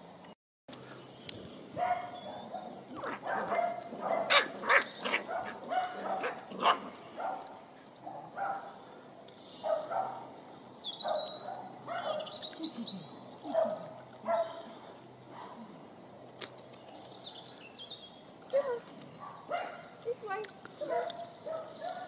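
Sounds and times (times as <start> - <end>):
dogs yipping and barking: 1.7 - 7.5, 8.1 - 8.7, 9.6 - 10.4, 11.0 - 12.8, 13.4 - 15.7, 18.5 - 19.9, 20.8 - 22.0.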